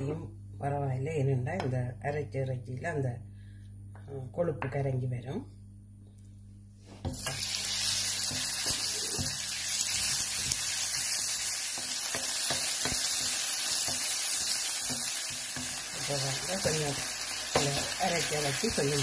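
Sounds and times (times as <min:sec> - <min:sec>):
meat sizzling in hot oil: 0:07.1 - 0:19.0
wooden spatula stirring in wok: 0:08.2 - 0:19.0.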